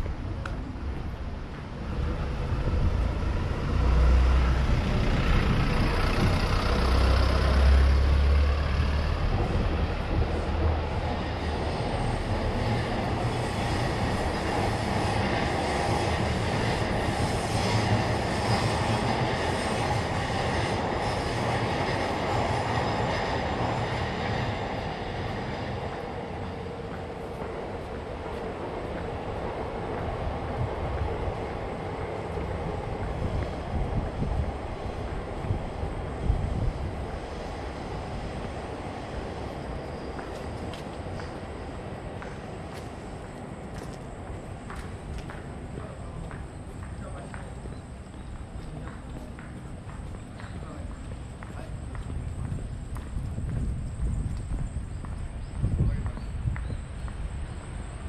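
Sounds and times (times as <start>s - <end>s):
high rail noise: 0.0s - 58.0s
train wheels rumbling on rails: 0.0s - 58.0s.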